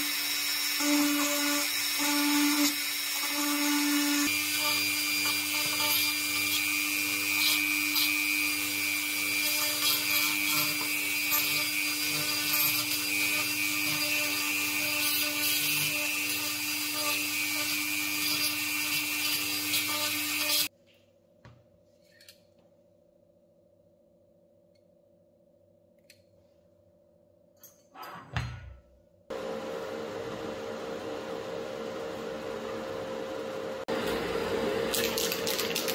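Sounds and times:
rotary tool grinding: 0:00.0 - 0:20.7.

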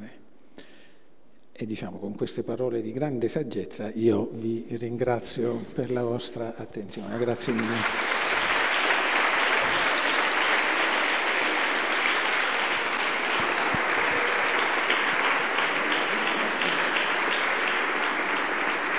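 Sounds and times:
audience applauding: 0:07.2 - 0:18.9.

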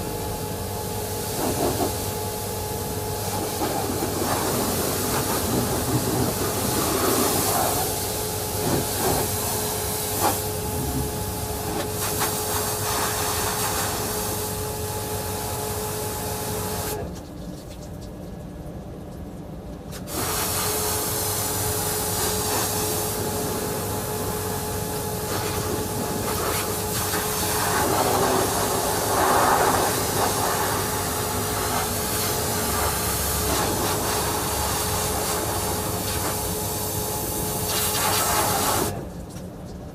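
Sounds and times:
pressure washer spraying: 0:03.2 - 0:14.1, 0:25.2 - 0:38.9.

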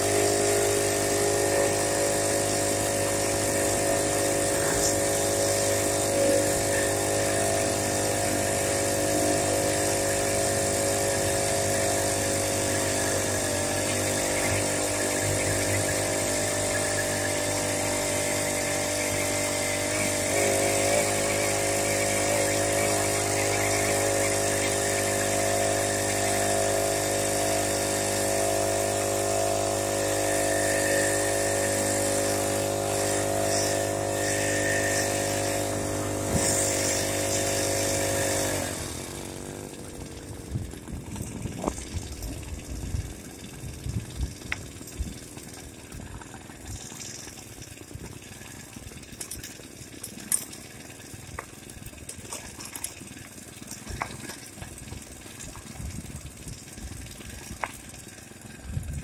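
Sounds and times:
small motorbike engine running: 0:00.0 - 0:59.0.

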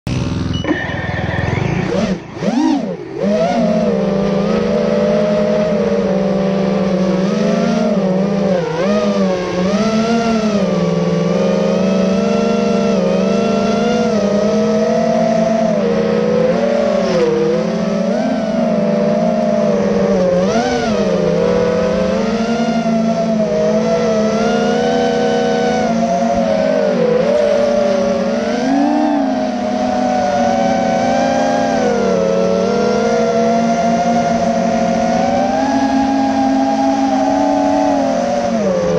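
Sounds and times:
quadcopter motors whining: 0:00.1 - 0:38.9.

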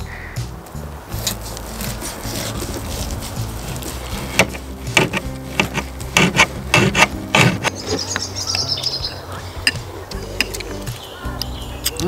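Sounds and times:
knife scraping on board: 0:01.2 - 0:07.7
bird chirping: 0:01.7 - 0:12.0.

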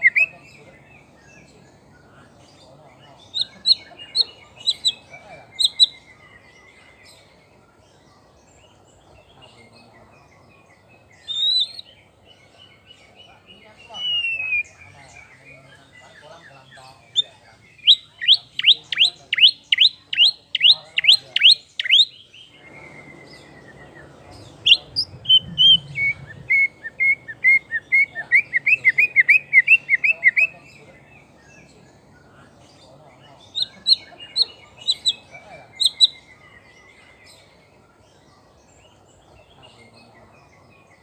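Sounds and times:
bird singing whistles: 0:14.0 - 0:14.7, 0:24.7 - 0:30.5.

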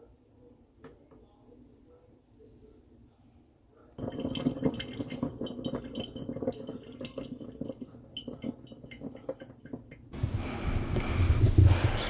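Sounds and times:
coffee machine gurgling: 0:04.0 - 0:10.1
coffee trickling into mug: 0:04.0 - 0:10.1.

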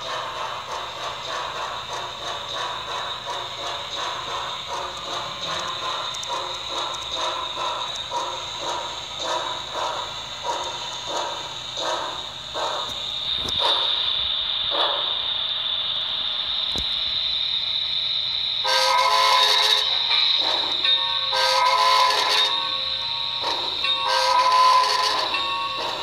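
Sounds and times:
model locomotive high whine: 0:00.0 - 0:26.0
soft steam chuffs: 0:00.0 - 0:26.0
steam whistle blasts: 0:18.6 - 0:20.2, 0:21.3 - 0:25.4.

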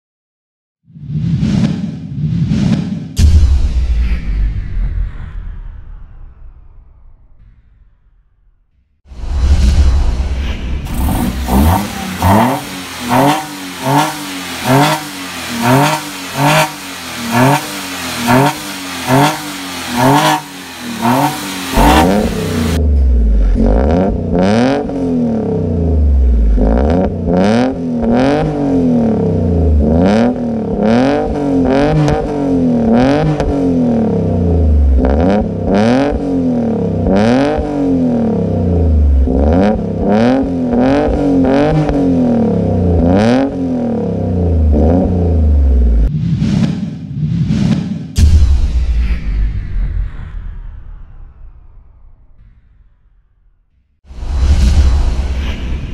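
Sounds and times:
car engine revving: 0:10.8 - 0:46.8.

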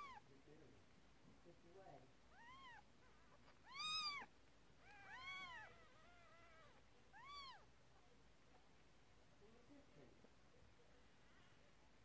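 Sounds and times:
kittens mewing: 0:02.3 - 0:07.7.

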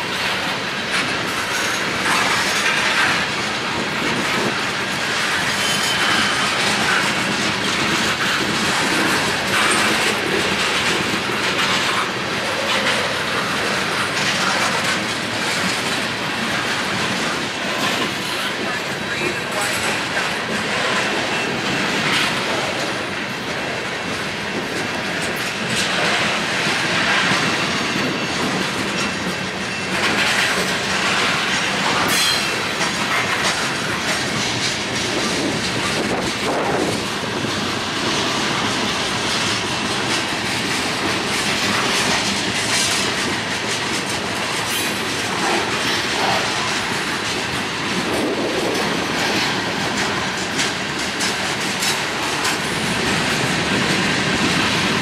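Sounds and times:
train wheels rumbling on rail: 0:00.0 - 0:55.0
wheels clicking over rail joints: 0:00.0 - 0:55.0
high wheel squeal: 0:05.5 - 0:06.5.

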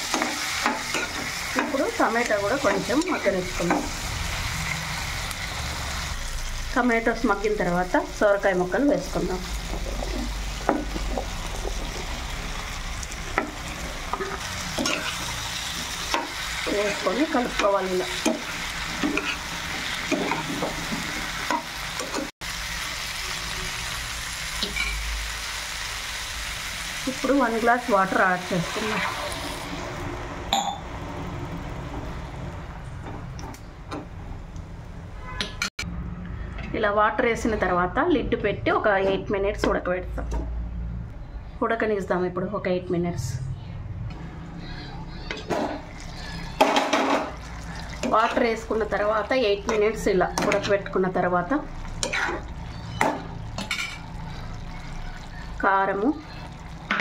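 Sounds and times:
vegetables sizzling in a frying pan: 0:00.0 - 0:30.3, 0:45.5 - 0:57.0
spoon stirring food in pan: 0:51.7 - 0:55.6.

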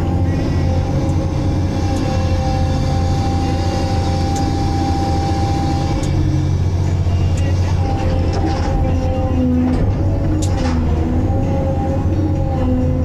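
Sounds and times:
thin steady hydraulic whine: 0:00.0 - 0:09.6
diesel engine deep rumble: 0:00.0 - 0:13.0.

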